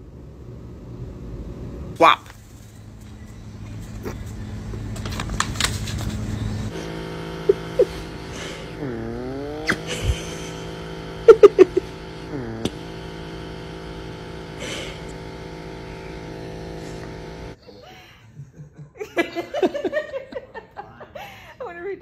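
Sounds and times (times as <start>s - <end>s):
handheld electric motor tool whirring: 6.8s - 17.6s.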